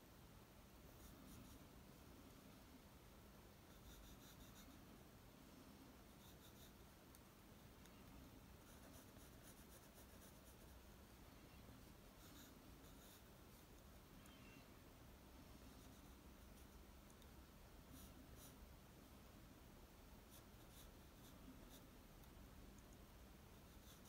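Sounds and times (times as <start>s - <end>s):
pencil scratching on paper: 0.9s - 1.6s, 3.7s - 4.7s, 6.1s - 6.8s, 8.6s - 10.9s, 12.2s - 13.8s, 15.7s - 16.8s, 17.9s - 18.6s, 20.3s - 21.9s, 23.5s - 24.0s.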